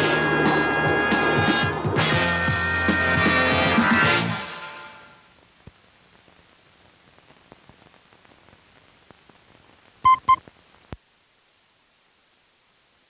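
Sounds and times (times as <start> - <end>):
faint steady hiss: 4.6 - 13.0
short loud beeps: 10.1 - 10.4.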